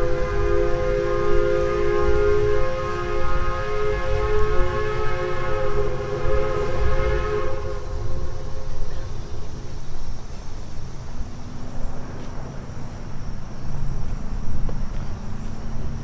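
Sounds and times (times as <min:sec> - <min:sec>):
steam whistle chord: 0:00.0 - 0:08.8
engines rumbling: 0:00.0 - 0:16.0.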